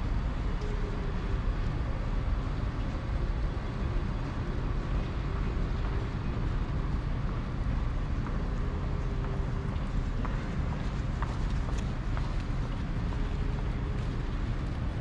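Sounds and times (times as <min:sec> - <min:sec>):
city street ambience: 0:00.0 - 0:15.0.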